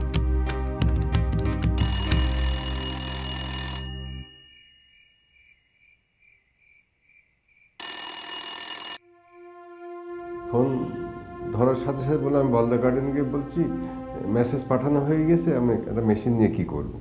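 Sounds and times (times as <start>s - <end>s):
telephone bell ringing: 1.8s - 5.2s, 7.8s - 9.0s.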